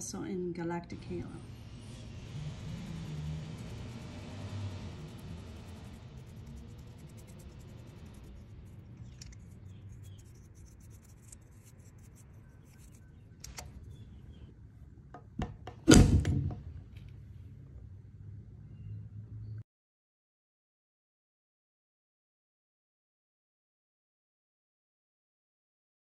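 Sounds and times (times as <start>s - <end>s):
low steady hum: 0.0s - 19.6s
loud short knock: 15.4s - 16.7s.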